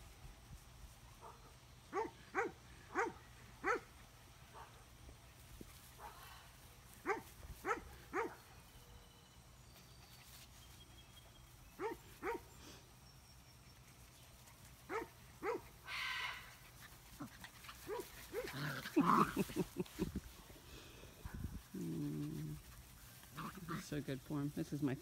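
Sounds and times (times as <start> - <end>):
dog barking: 1.2 - 3.9, 7.0 - 8.4, 11.8 - 12.4, 14.9 - 15.6.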